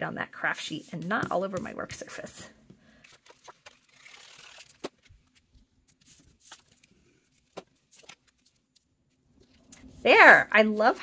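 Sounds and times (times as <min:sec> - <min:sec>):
paper rustling: 0:02.9 - 0:10.0.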